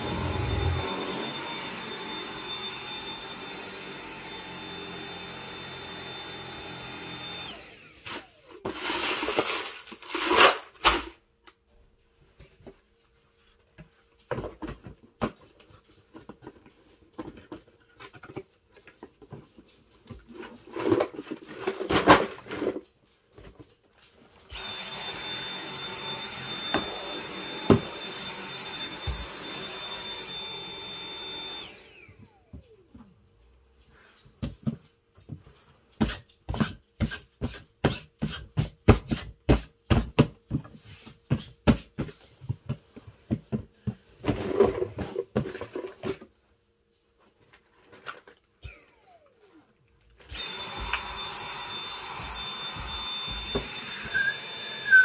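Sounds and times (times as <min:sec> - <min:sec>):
stick vacuum whining: 0:00.0 - 0:11.0, 0:24.4 - 0:33.3, 0:48.0 - 0:55.0
boxes rustling and knocking: 0:14.2 - 0:23.8, 0:36.0 - 0:46.4.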